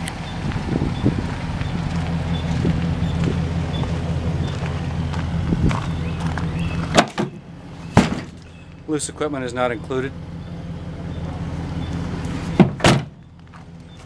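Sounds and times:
pickup engine idling: 0.0s - 14.0s
footsteps on gravel: 0.1s - 6.9s, 13.4s - 13.9s.

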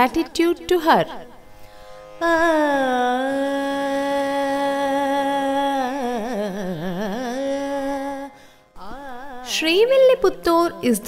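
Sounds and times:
person singing a long note: 2.2s - 9.8s.

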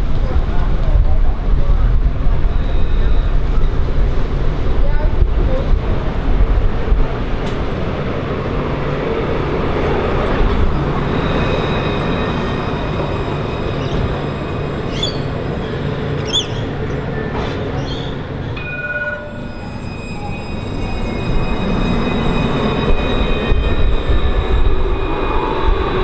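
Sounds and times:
tram wheels rumbling on rail: 0.0s - 26.0s.

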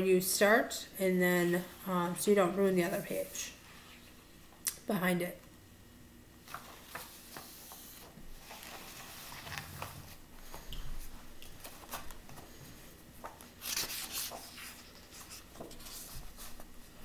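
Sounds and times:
paper pages rustling: 6.4s - 17.0s.

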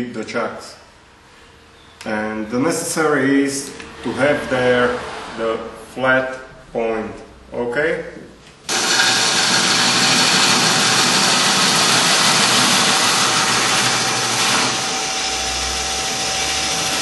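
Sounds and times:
gouge cutting wood on a lathe: 8.7s - 17.0s.

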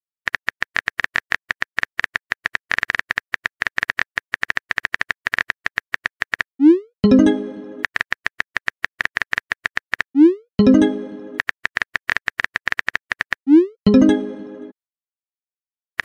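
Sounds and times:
phone keyboard typing clicks: 0.3s - 6.5s, 7.6s - 10.1s, 11.3s - 13.5s.

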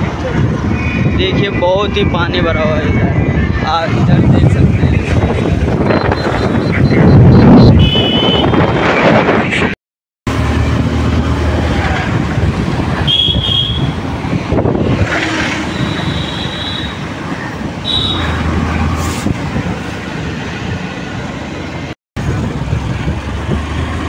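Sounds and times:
wind on microphone: 0.0s - 9.8s, 10.8s - 16.3s, 22.2s - 24.0s
short high-pitched beeps: 5.8s - 8.4s
engine rumble: 10.3s - 24.0s.

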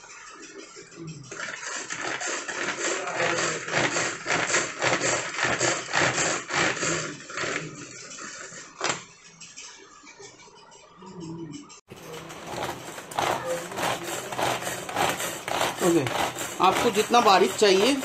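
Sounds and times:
manual vegetable chopper rasping: 1.3s - 8.6s, 11.9s - 18.0s.

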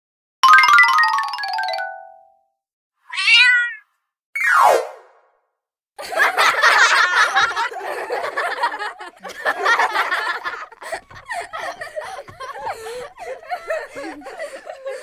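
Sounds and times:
person snickering: 10.8s - 15.0s.

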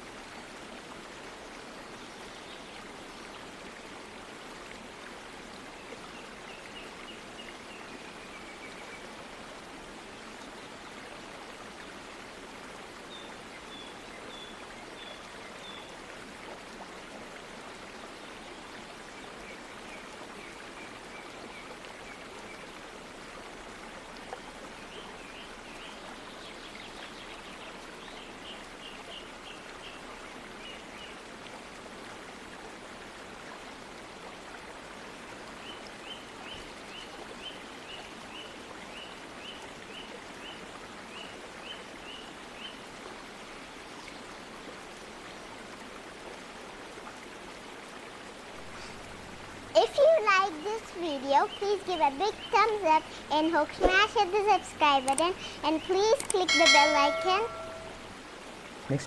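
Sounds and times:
waterfall rushing: 48.5s - 59.0s
short high chirps: 56.5s - 58.0s.

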